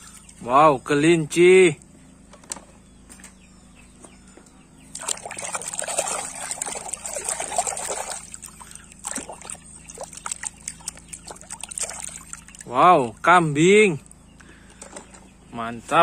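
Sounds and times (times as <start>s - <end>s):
hand sloshing through soapy water: 4.9s - 12.7s
water dripping and splashing: 4.9s - 12.7s.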